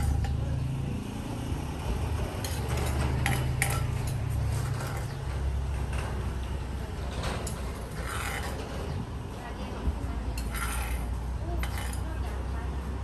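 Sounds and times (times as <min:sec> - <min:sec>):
utensils clinking against dishes: 0:00.0 - 0:00.8, 0:02.3 - 0:09.0, 0:10.3 - 0:12.5.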